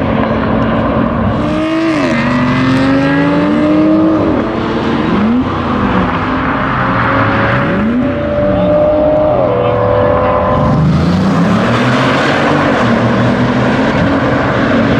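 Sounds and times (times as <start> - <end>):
cars accelerating hard: 0.0 - 14.9.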